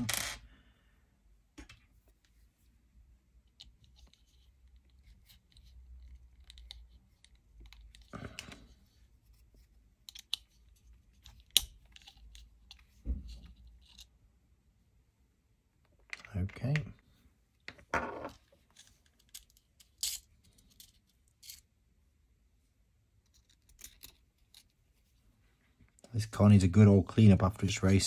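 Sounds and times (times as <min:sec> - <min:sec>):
small metal tools clicking and rattling: 0:18.7 - 0:21.7, 0:23.2 - 0:24.7.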